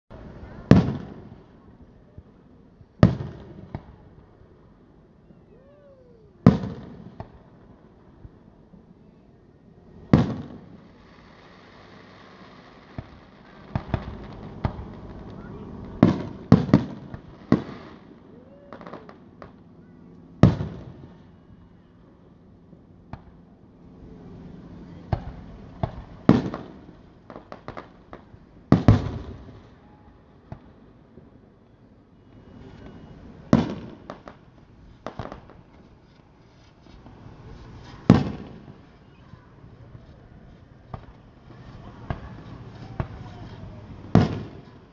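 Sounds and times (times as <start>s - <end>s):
fireworks booming: 0.4s - 1.6s, 2.9s - 4.2s, 6.4s - 7.6s, 10.0s - 19.6s, 20.4s - 21.3s, 25.0s - 29.7s, 32.3s - 36.0s, 37.0s - 44.9s.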